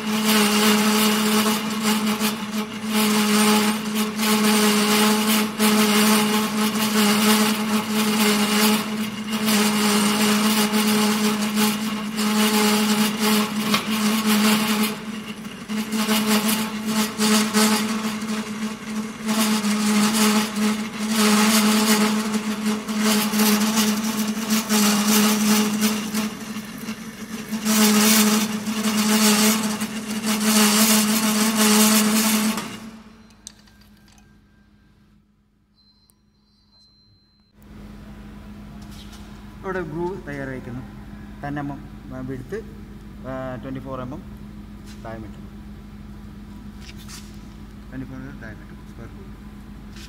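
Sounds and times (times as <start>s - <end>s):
lathe motor and gear hum: 0.0s - 34.9s.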